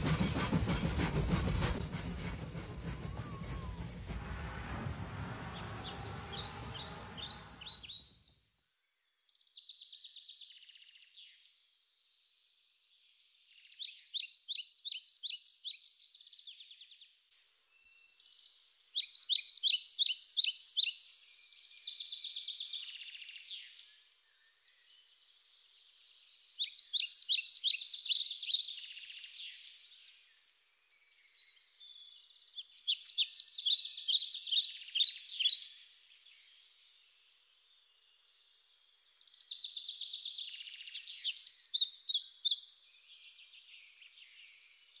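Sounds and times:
birds chirping rapidly: 0:02.2 - 0:08.0.

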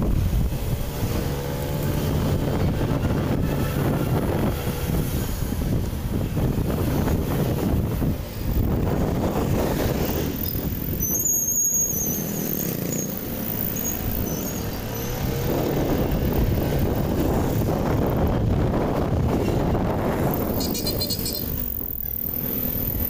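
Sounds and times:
motorcycle engine rumble: 0:00.0 - 0:23.0
wind and road noise: 0:00.0 - 0:23.0
high-pitched squeal: 0:09.2 - 0:17.2, 0:20.3 - 0:23.0.

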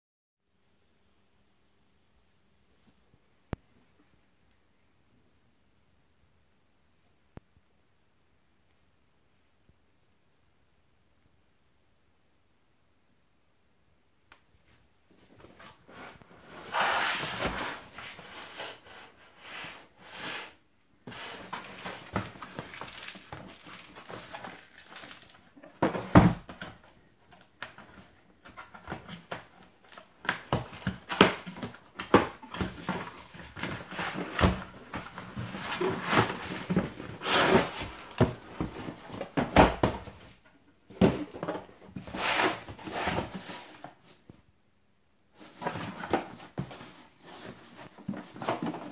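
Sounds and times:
cardboard scraping and rustling: 0:15.3 - 0:27.0, 0:27.6 - 0:44.2, 0:45.4 - 0:48.9.

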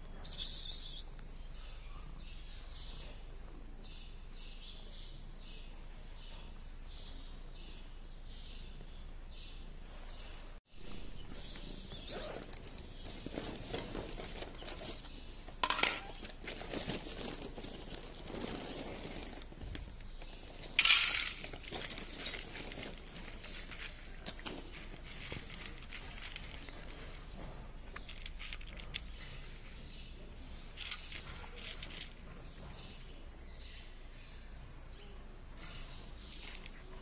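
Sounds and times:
cat food packet crinkling: 0:16.0 - 0:27.2.

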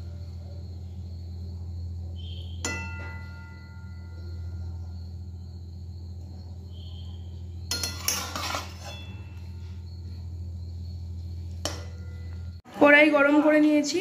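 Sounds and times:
steady low hum: 0:00.0 - 0:14.0
metal spatula scraping a metal pan: 0:07.7 - 0:09.8.

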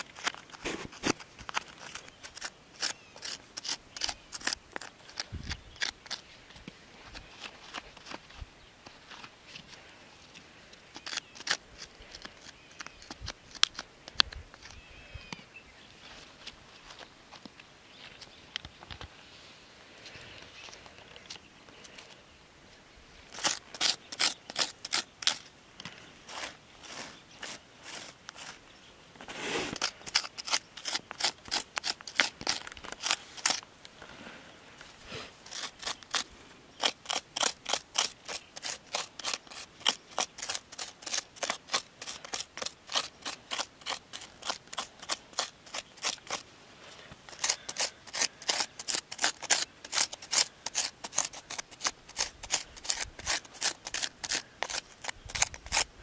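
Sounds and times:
quick scraping strokes: 0:29.2 - 0:33.6.

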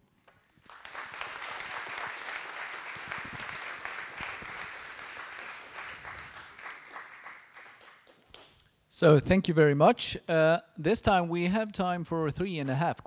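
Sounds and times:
audience applauding: 0:00.5 - 0:08.6.

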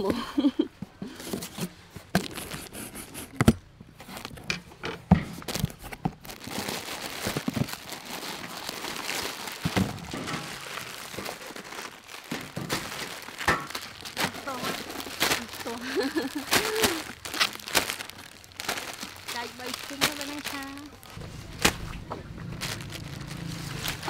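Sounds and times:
plastic packets crinkling: 0:02.1 - 0:04.4, 0:05.3 - 0:24.0.

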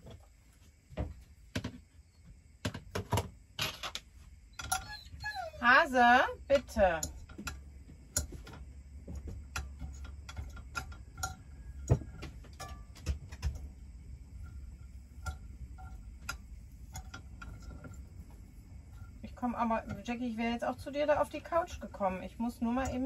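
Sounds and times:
food crackling in a pan: 0:14.4 - 0:23.0.

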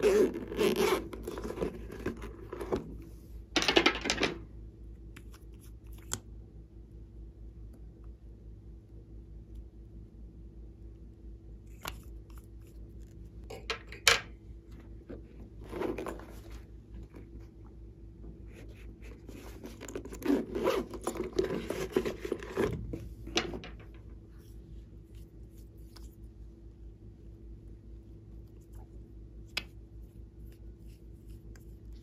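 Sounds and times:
plastic rasping and scraping: 0:19.1 - 0:23.0.

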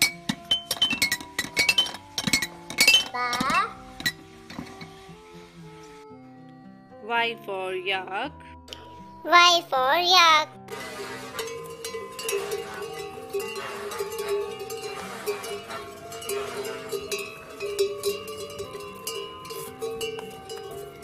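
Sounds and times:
yak bells clanking: 0:00.0 - 0:05.0, 0:10.7 - 0:21.0.

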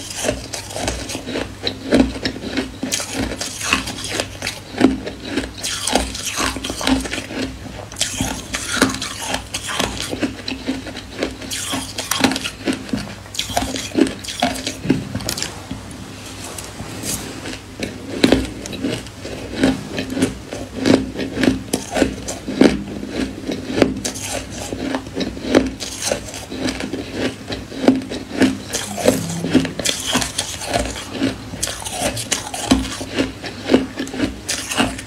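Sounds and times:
metal spoon scraping bowl: 0:28.4 - 0:32.5.

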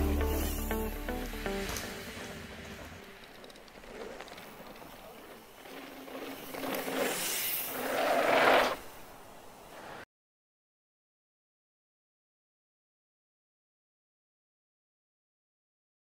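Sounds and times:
bike tyre noise: 0:01.6 - 0:10.0.

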